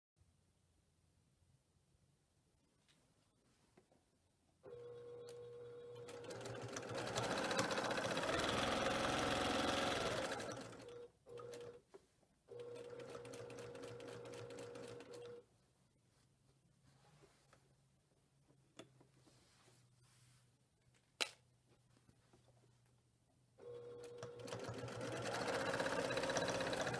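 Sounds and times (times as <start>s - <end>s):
sewing machine stitching: 4.7s - 11.8s, 12.5s - 15.4s, 23.6s - 26.9s.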